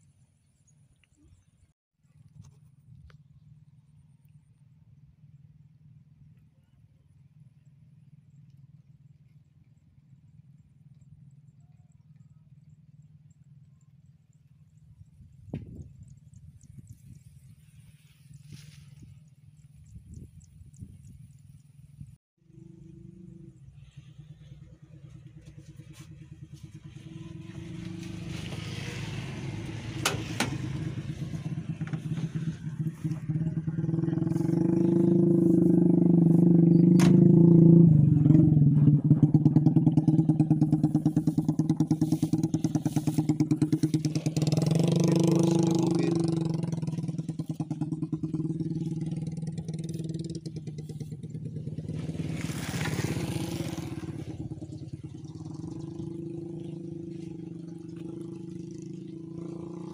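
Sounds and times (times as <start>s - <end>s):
pickup engine running: 22.4s - 59.9s.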